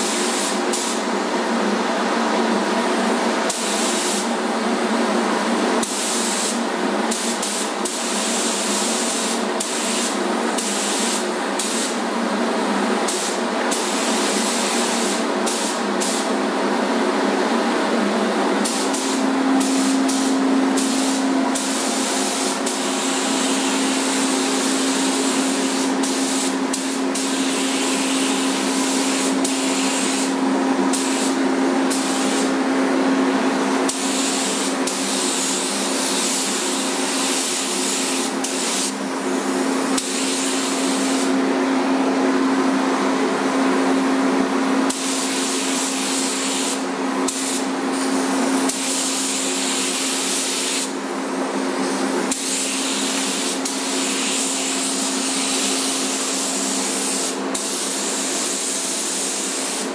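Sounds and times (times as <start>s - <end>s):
paint spray gun hissing: 0.0s - 1.1s, 3.5s - 4.3s, 5.8s - 12.0s, 13.1s - 16.3s, 18.6s - 32.6s, 33.5s - 41.4s, 44.9s - 51.0s, 52.3s - 59.9s.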